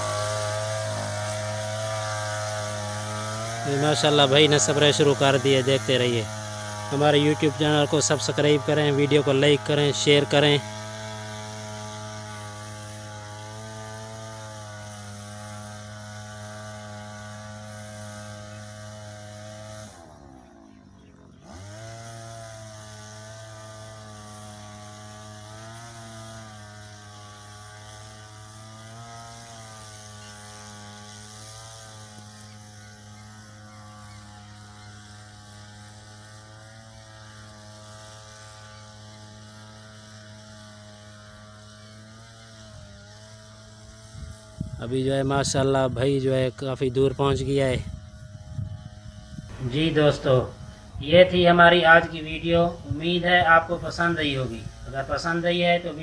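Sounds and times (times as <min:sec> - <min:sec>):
crop sprayer engine running: 0:00.0 - 0:56.0.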